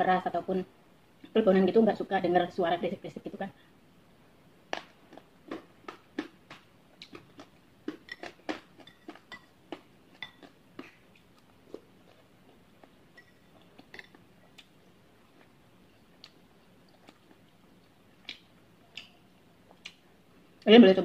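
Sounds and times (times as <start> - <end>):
chewing and mouth clicks: 4.7 - 20.0
metal spoon clinking on bowl: 8.1 - 9.6, 13.1 - 14.2.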